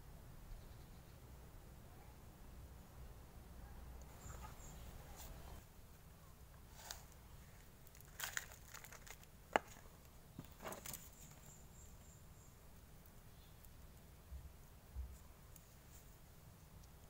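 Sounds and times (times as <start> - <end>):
gloved hands handling plastic pot: 6.8 - 11.4.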